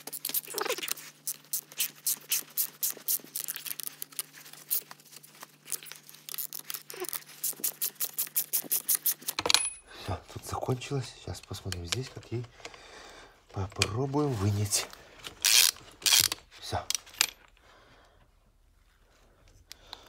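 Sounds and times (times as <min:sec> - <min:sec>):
ratchet wrench clicking: 0:15.4 - 0:16.4.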